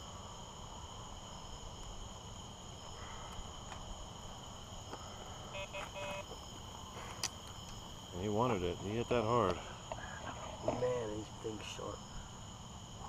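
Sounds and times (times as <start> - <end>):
crickets chirping: 0.0 - 13.0
short beeps: 5.5 - 6.3.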